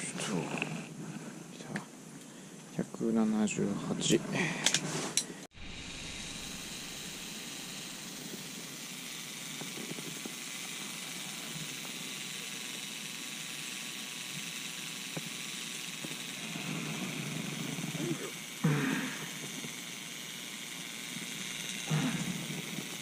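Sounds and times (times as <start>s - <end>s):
steady hiss-like background noise: 0.0s - 7.0s.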